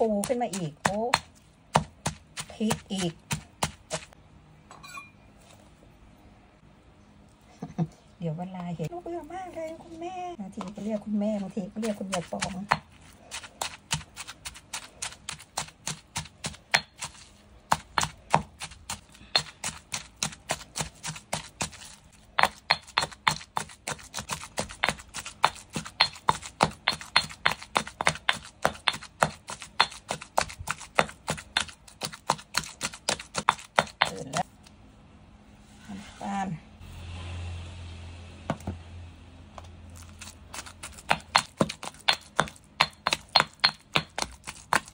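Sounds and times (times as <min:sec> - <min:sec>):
pestle pounding in stone mortar: 0:00.0 - 0:04.2, 0:10.6 - 0:34.4, 0:38.5 - 0:38.8, 0:40.0 - 0:44.9.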